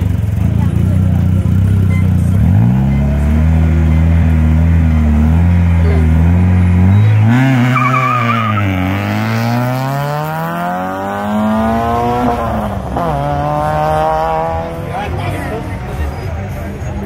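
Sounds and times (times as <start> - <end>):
rally car engine revving: 0.0 - 17.0
tire squeal: 6.8 - 9.5.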